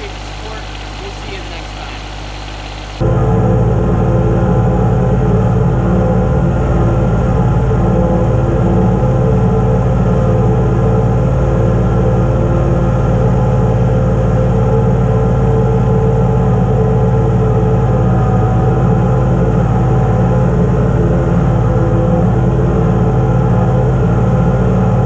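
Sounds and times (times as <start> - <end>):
tractor engine running: 0.0 - 3.2.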